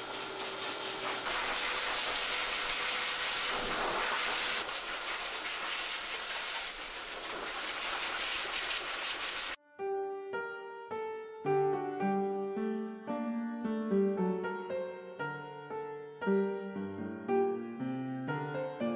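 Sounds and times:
pet dryer blowing air: 0.0 - 9.6.

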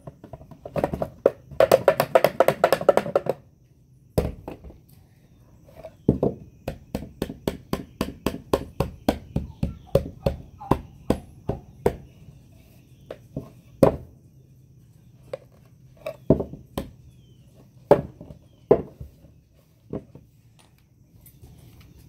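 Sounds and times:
sharp wooden knocks: 0.0 - 3.4, 6.1 - 12.1.

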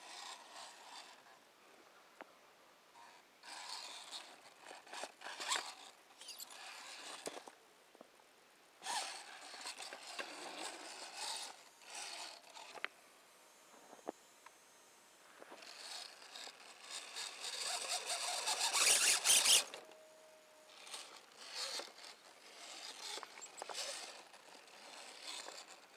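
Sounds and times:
toy car drivetrain whirring: 0.0 - 1.3, 3.0 - 7.6, 8.8 - 12.9, 15.4 - 20.0, 20.7 - 25.9
tyres scraping on stone: 15.5 - 19.8, 20.8 - 25.8.

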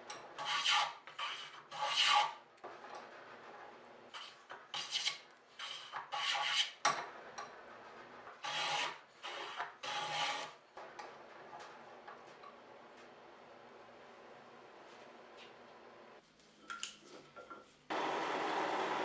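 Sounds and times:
file scraping wood: 0.2 - 6.9, 7.8 - 10.6.

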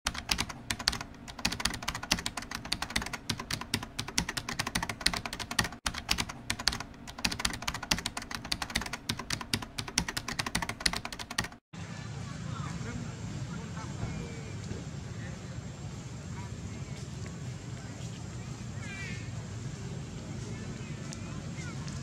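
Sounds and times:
fast keyboard typing: 0.1 - 11.6.

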